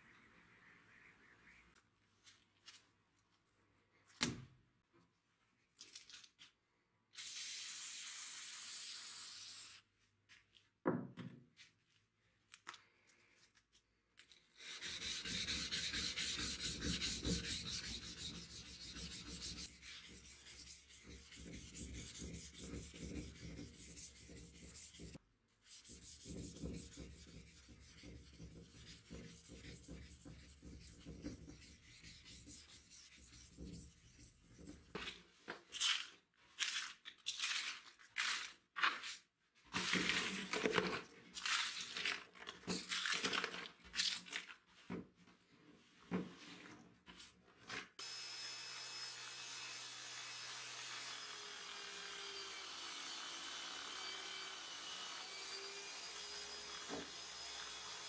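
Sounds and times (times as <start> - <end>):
sandpaper scraping metal blade: 14.5 - 34.8.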